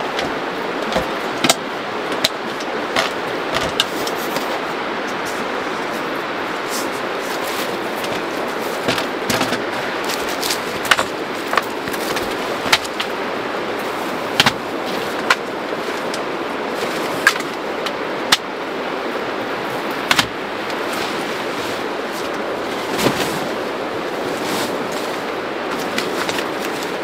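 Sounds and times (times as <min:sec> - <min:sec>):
camping gear handled: 0:00.0 - 0:17.6, 0:20.1 - 0:27.0
steady rushing background noise: 0:00.0 - 0:27.0
sharp clicks and knocks: 0:00.1 - 0:04.5
footsteps on pebbles: 0:06.6 - 0:13.1.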